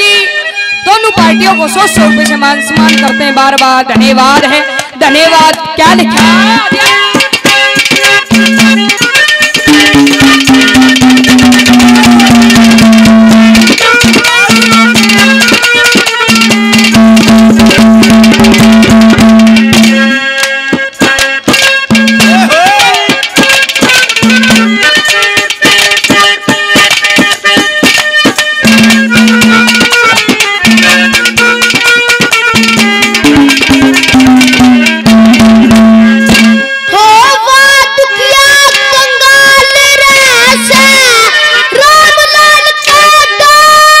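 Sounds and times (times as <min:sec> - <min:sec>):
hand drum fast beat: 0:01.2 - 0:36.6
long held melody notes: 0:07.8 - 0:20.5.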